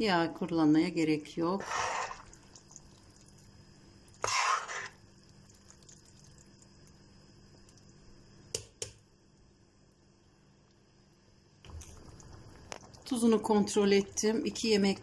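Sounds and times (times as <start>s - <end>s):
spoon scraping in sauce: 1.6s - 2.4s, 4.2s - 5.0s.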